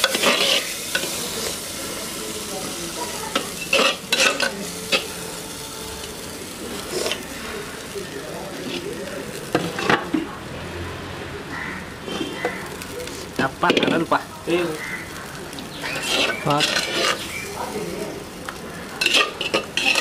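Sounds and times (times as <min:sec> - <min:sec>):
hot oil sizzling: 0:00.0 - 0:20.0
metal ladle scraping a clay pot: 0:03.6 - 0:05.7, 0:15.9 - 0:17.3, 0:19.0 - 0:20.0.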